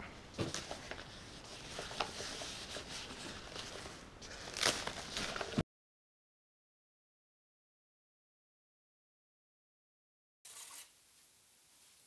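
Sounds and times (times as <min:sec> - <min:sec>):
plastic wrapping rustling: 0:00.3 - 0:05.6.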